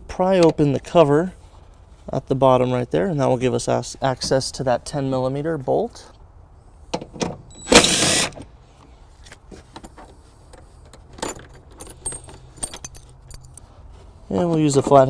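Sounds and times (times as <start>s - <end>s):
tools clicking and jingling: 9.8s - 13.7s.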